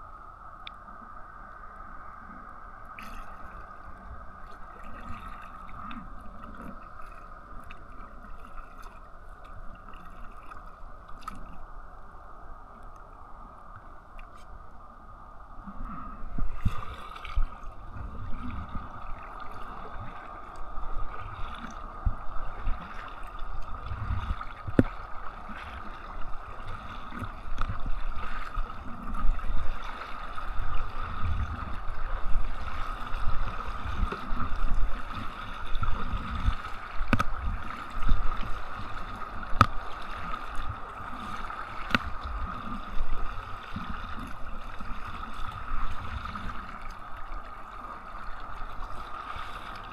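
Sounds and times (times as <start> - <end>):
water sloshing against kayak hull: 15.6 - 49.9.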